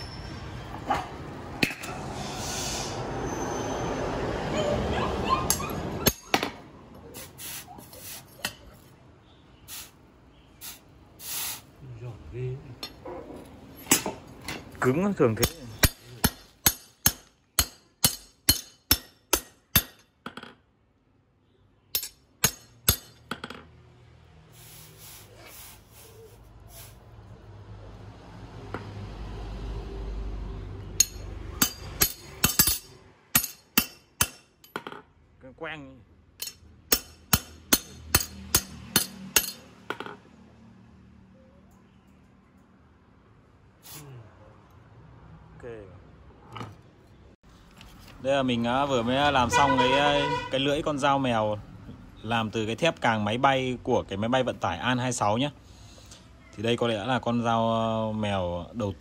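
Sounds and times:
short hissing scrapes: 2.0s - 3.8s, 7.1s - 8.4s, 9.7s - 10.0s, 10.6s - 11.8s, 24.5s - 27.1s, 43.8s - 44.2s
metal clinking on metal: 21.9s - 23.7s, 31.0s - 35.0s, 36.4s - 40.2s.

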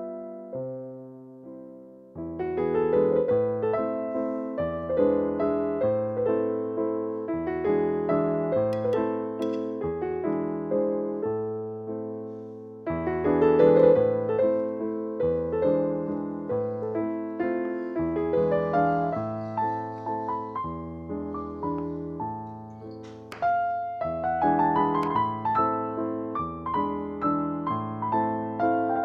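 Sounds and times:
solo piano music: 0.0s - 29.0s.

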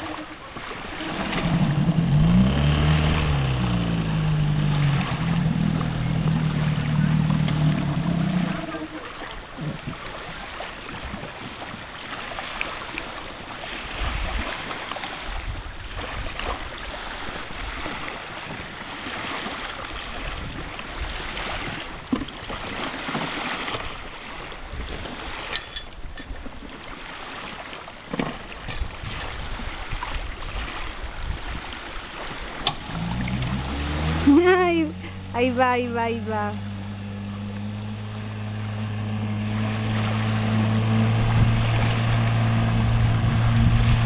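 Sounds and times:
water noise: 0.0s - 44.0s
wind: 0.0s - 44.0s
wind buffeting microphone: 13.6s - 26.6s, 28.6s - 44.0s.

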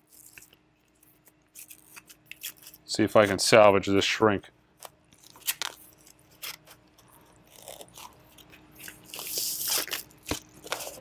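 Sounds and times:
plastic shrink wrap crinkling: 4.8s - 11.0s.

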